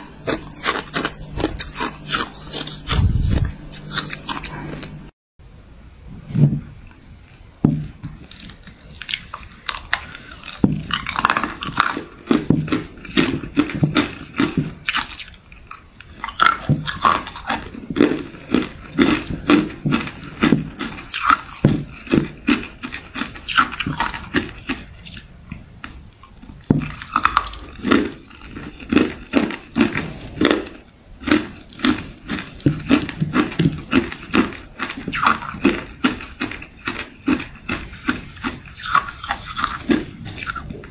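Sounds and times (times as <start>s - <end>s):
ice cubes crunched in mouth: 8.2s - 25.3s, 26.8s - 40.9s.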